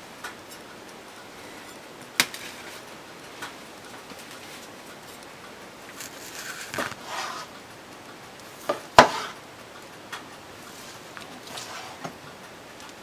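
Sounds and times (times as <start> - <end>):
knife slicing chicken: 6.0 - 7.4.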